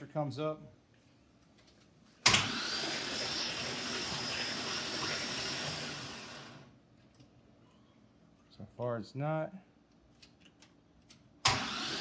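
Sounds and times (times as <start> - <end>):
starter motor cranking: 2.3 - 6.6, 11.4 - 12.0.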